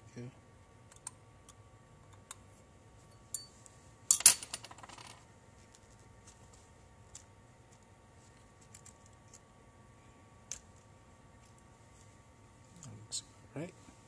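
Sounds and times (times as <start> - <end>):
faint clicks of small parts: 0.9 - 2.4, 5.6 - 9.5, 10.4 - 11.7.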